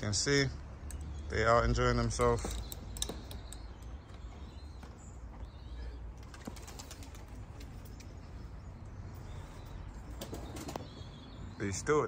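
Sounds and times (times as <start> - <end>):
pigeon wings flapping: 6.2 - 7.8.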